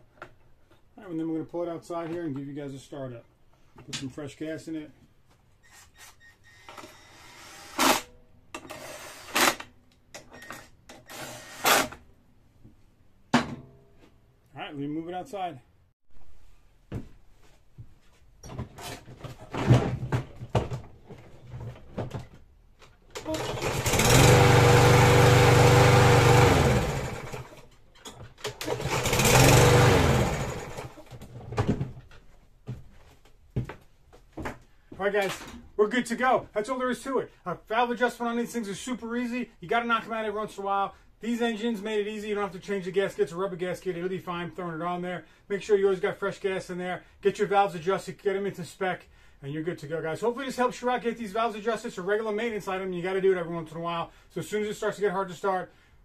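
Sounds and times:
mower engine running: 23.2s - 27.6s, 28.6s - 31.0s
engine pull-start: 23.2s - 27.7s, 28.4s - 31.0s.

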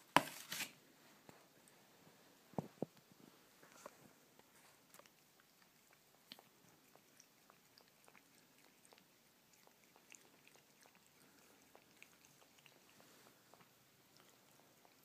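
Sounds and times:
cat lapping: 4.4s - 15.0s.

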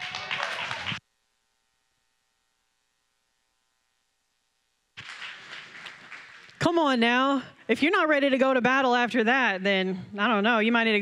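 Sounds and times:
audience applause: 0.0s - 1.0s, 5.0s - 6.6s
faint electrical hum: 0.8s - 11.0s.

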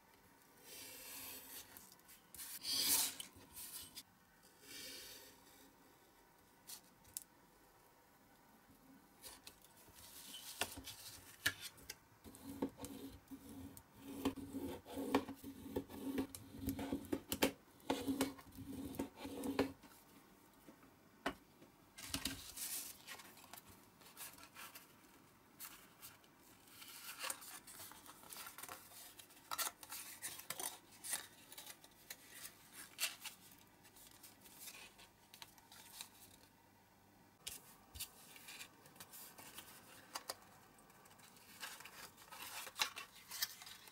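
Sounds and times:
card rustling and creasing: 25.6s - 36.5s, 37.5s - 43.9s.

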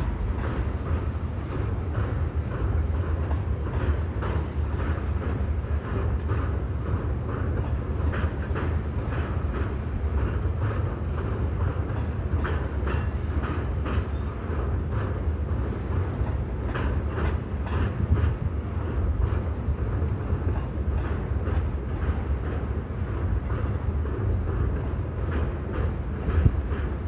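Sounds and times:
freight train rumbling past: 0.0s - 27.0s.

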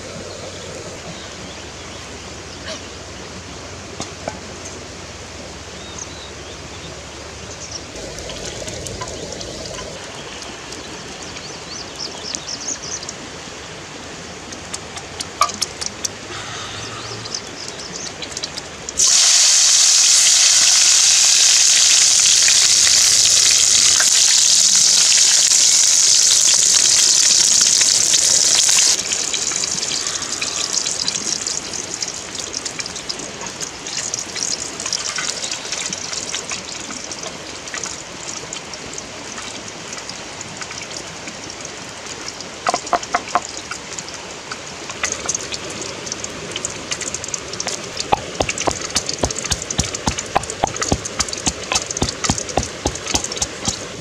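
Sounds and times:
food sizzling in a pan: 19.0s - 32.6s, 47.7s - 54.0s
fire crackles: 19.0s - 32.8s, 47.6s - 54.0s.

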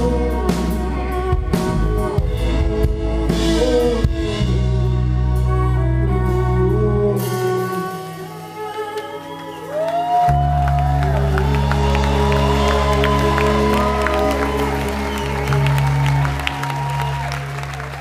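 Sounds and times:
acoustic guitar and fiddle: 0.0s - 9.6s
crowd clapping and whooping: 8.4s - 18.0s.

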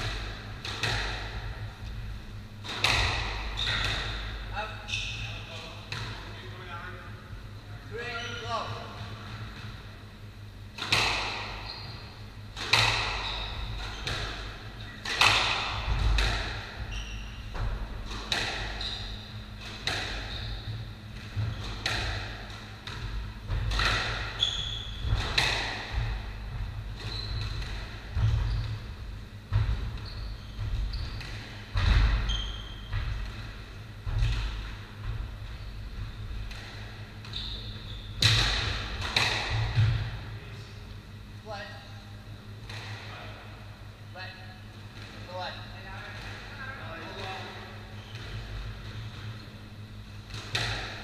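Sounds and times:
squash ball hits: 0.0s - 1.7s, 2.6s - 4.4s, 10.7s - 11.6s, 12.2s - 16.9s, 17.5s - 30.0s, 30.6s - 35.4s, 38.2s - 40.4s, 50.2s - 51.0s
shoes squeaking on wooden floor: 11.6s - 12.1s, 16.8s - 17.6s, 24.4s - 25.1s, 27.0s - 27.6s, 28.2s - 28.9s, 29.9s - 31.6s, 37.2s - 38.2s.

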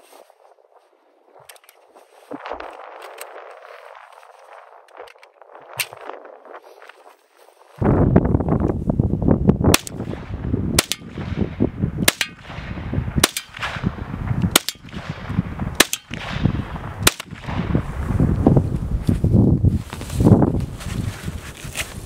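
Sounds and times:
wind rumble on microphone: 0.0s - 22.0s
rifle shots: 9.7s - 17.9s.

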